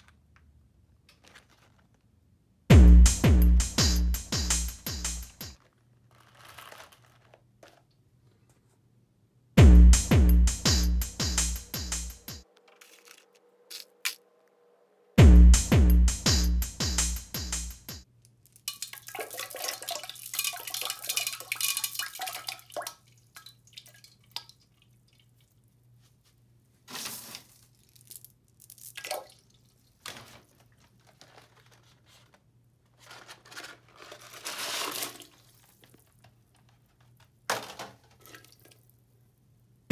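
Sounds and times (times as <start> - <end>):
electronic music with drum beat: 2.7 - 5.6, 9.6 - 12.4, 15.2 - 18.0
candies poured into water: 18.6 - 24.2, 34.2 - 36.1
small splashes: 18.7 - 25.6, 28.8 - 30.0.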